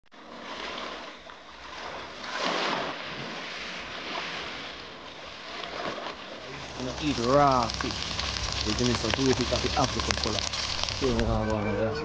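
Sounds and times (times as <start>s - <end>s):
sea waves washing: 0.2s - 11.6s
wind on microphone: 6.5s - 12.0s.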